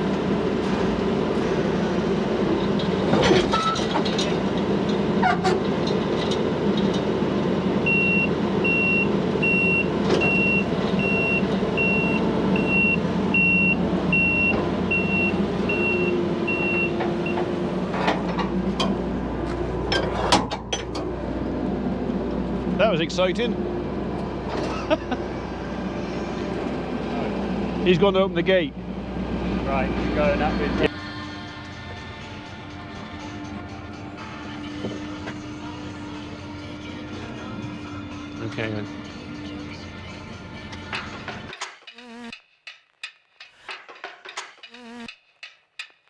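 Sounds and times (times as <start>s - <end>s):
diesel engine running: 0.0s - 41.6s
reversing alarm beeping: 7.8s - 17.4s
metallic knocks and clanks: 40.7s - 42.0s, 42.6s - 46.0s.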